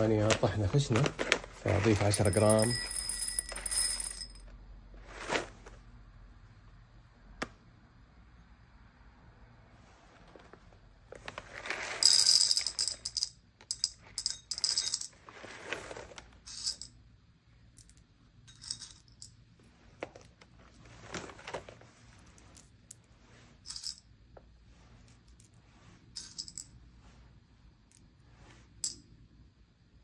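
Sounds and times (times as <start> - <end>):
coffee beans clattering into glass bowl: 1.8 - 4.3, 11.6 - 15.1.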